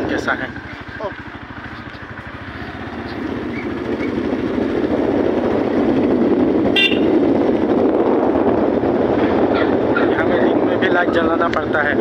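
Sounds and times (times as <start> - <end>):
vehicle road and wind noise: 0.0 - 12.0
short horn toot: 6.8 - 7.2.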